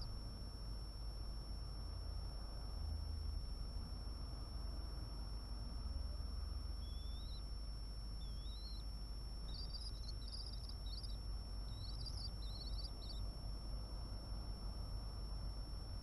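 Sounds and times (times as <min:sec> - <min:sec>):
low hum: 0:06.6 - 0:15.1
bird chicks calling: 0:06.8 - 0:07.4, 0:08.2 - 0:08.8, 0:09.5 - 0:13.2
high electronic whine: 0:06.8 - 0:07.5, 0:08.2 - 0:08.9, 0:09.5 - 0:13.2.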